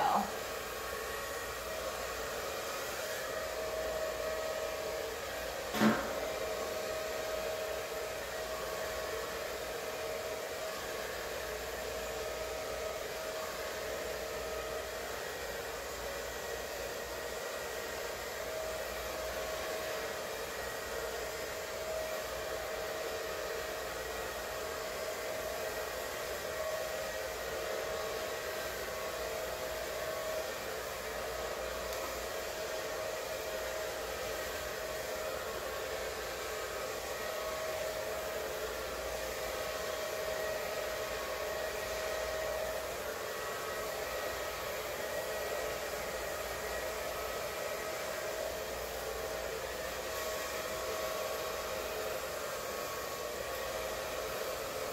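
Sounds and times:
blow dryer running: 0.0 - 54.9.

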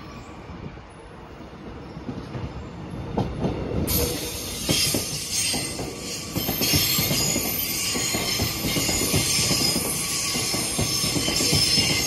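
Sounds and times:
train wheels knocking over track: 3.2 - 12.0
steel wheels hissing on rail: 3.9 - 12.0.

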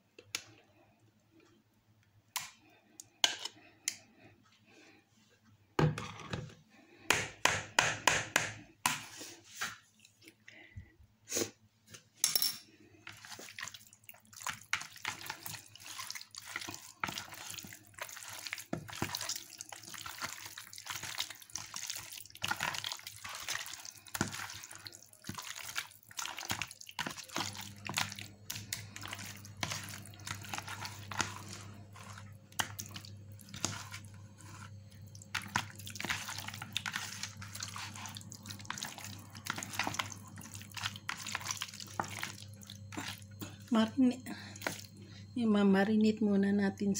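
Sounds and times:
low steady hum: 10.0 - 46.9
wet squelching of kneaded chicken: 13.0 - 45.1.

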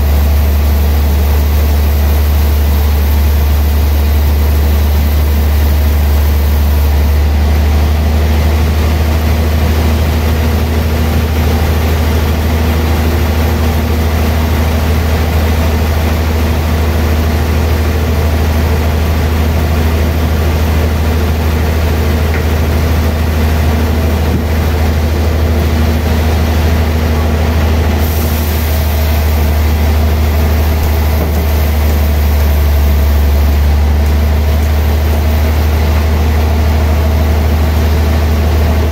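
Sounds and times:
band saw sawing log: 21.7 - 38.9.

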